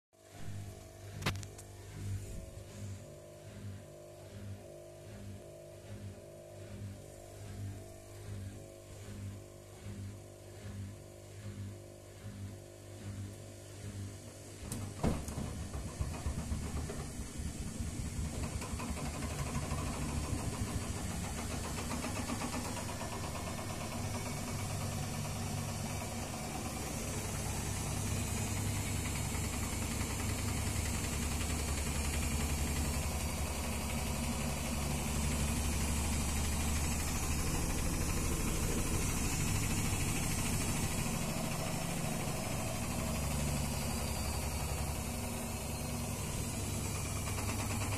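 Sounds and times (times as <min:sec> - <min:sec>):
washing machine spin rumble and whir: 0:00.2 - 0:47.9
washing machine drum knocking: 0:14.6 - 0:47.9.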